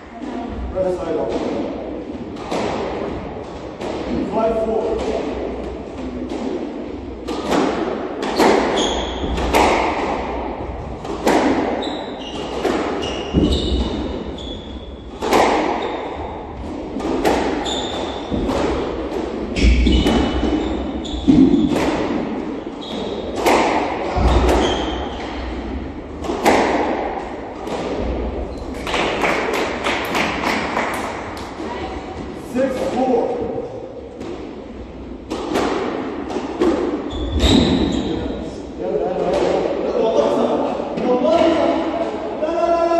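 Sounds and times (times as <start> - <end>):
shoes squeaking on hardwood floor: 8.7 - 9.4, 11.8 - 15.0, 17.6 - 18.4, 19.5 - 21.7, 22.8 - 23.4, 24.3 - 25.4, 37.0 - 38.3.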